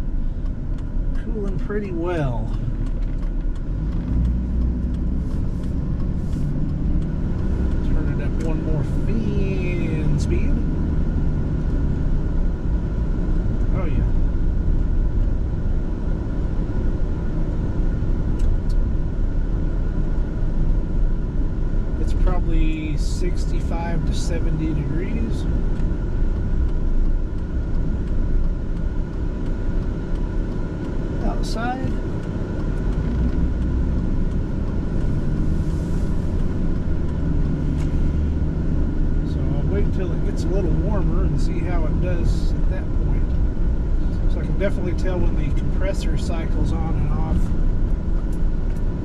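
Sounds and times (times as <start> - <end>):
engine and road rumble: 0.0 - 49.0
faint ticks: 0.3 - 9.2, 24.4 - 35.4.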